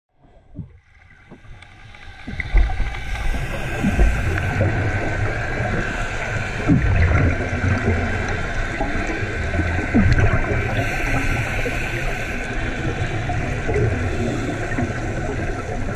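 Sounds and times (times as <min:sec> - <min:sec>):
underwater low rumble with gurgling: 0:00.1 - 0:15.9.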